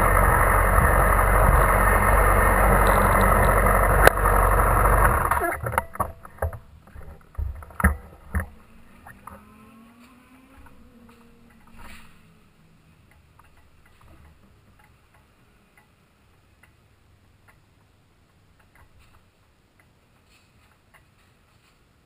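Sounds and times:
wall clock ticking: 13.1 - 21.2.

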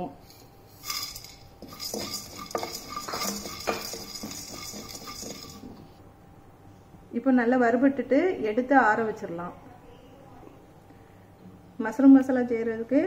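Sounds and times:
spatula scraping metal pan: 0.3 - 5.9.

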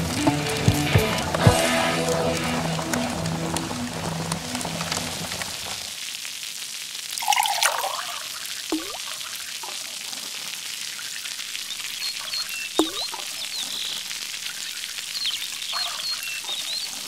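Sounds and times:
water trickling: 7.1 - 17.0
drop plopping into water: 8.7 - 9.0, 12.8 - 13.1
faint high chirps: 11.7 - 14.0.

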